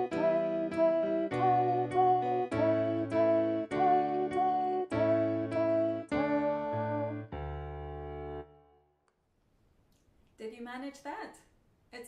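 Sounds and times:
slow computer bass melody: 0.0s - 7.3s.

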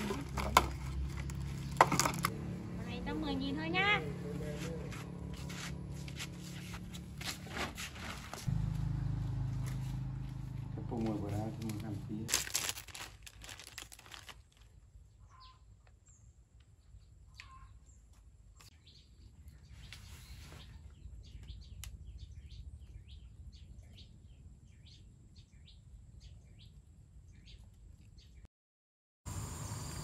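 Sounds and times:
low outdoor rumble: 0.0s - 15.3s
plastic snack packet crinkling: 11.6s - 14.8s
small birds chirping: 13.4s - 28.5s.

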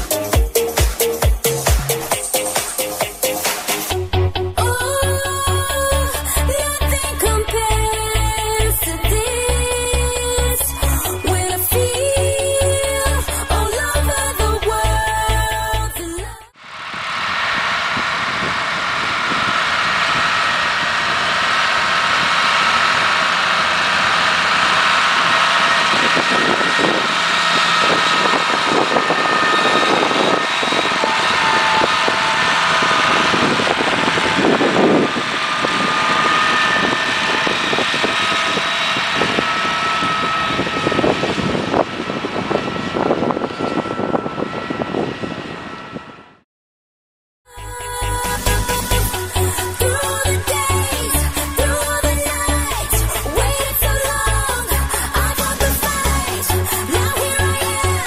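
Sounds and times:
tractor engine running under load: 0.0s - 16.0s, 16.7s - 46.2s, 47.9s - 58.0s
dense rushing noise: 16.6s - 46.1s.

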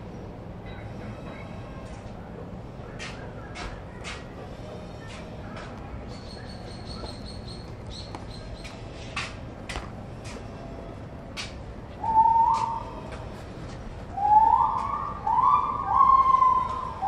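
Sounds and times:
rising whistled notes: 12.0s - 12.9s, 14.2s - 17.0s.

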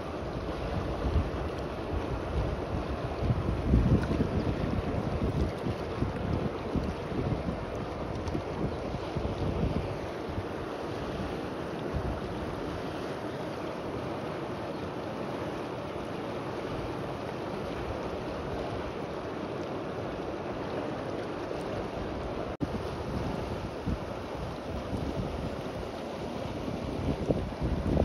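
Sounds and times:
river water rushing: 0.0s - 28.0s
wind buffeting microphone: 0.7s - 10.5s, 22.6s - 28.0s.

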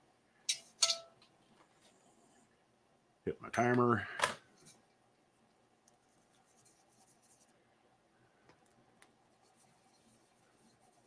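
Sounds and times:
swab scratching on paint: 5.9s - 7.5s, 9.3s - 11.0s.

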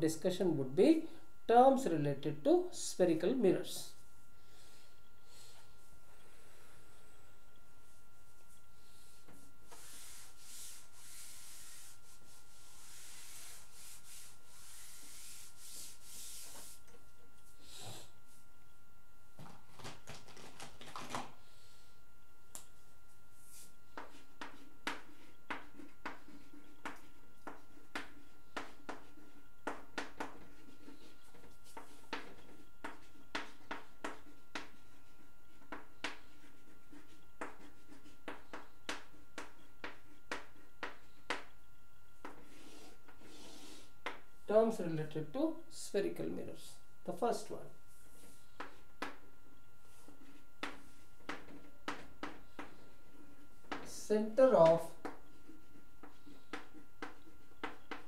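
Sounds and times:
eraser rubbing on chalkboard: 9.3s - 16.8s, 23.4s - 41.4s, 42.2s - 43.9s
chalk writing on blackboard: 9.3s - 16.9s, 23.4s - 44.2s, 49.8s - 53.9s, 54.7s - 58.0s.

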